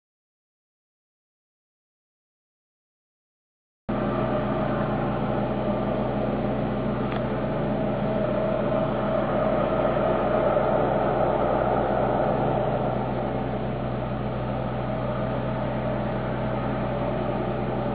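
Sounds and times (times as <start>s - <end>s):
boat engines droning: 3.9s - 17.9s.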